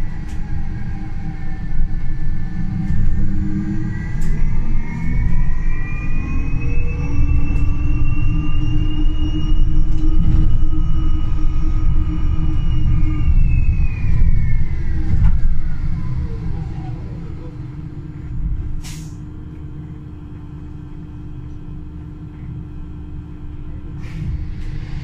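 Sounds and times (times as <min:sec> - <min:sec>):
electric bus drive whine: 0:00.0 - 0:25.0
low steady hum: 0:00.0 - 0:25.0
pneumatic air hiss: 0:18.8 - 0:19.2.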